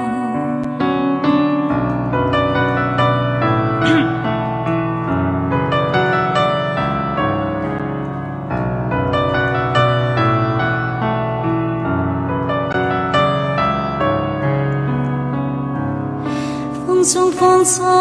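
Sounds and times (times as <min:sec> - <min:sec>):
piano playing: 0:00.0 - 0:18.0.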